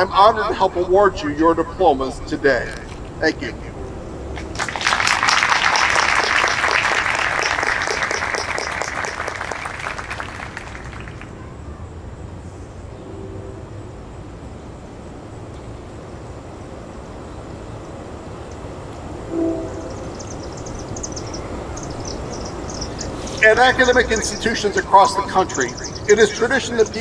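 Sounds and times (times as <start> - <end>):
audience applauding: 4.4 - 11.4.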